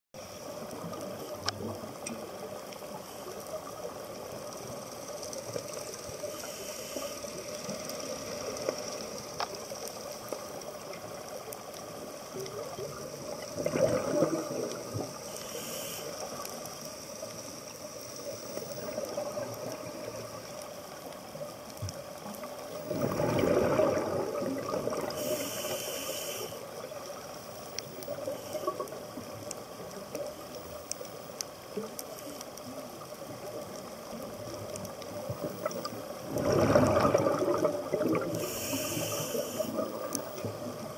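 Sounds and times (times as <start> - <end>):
regulator hiss on inhale: 0.2 - 12.4, 14.4 - 21.2, 24.9 - 33.0, 38.2 - 40.9
steady underwater hiss: 0.2 - 40.9
exhaled bubbles underwater: 11.8 - 15.3, 18.6 - 21.4, 22.0 - 25.7, 32.6 - 40.9.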